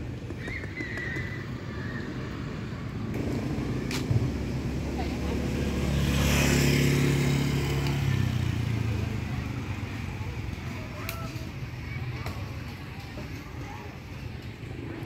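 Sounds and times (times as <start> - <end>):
vehicle engine passing: 3.0 - 10.0.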